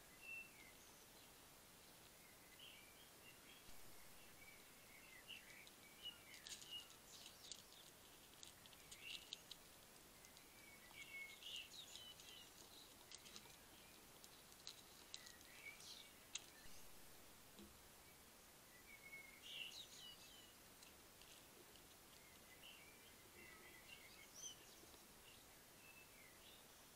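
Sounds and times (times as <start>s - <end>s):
hedgehog chewing dry biscuits: 5.1s - 16.8s, 19.9s - 23.2s.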